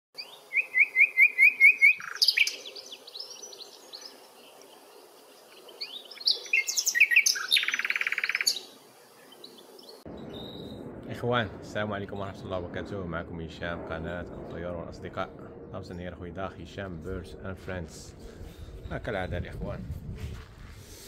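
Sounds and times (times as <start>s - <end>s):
goldfinch singing: 0.2s - 4.6s, 5.6s - 10.8s.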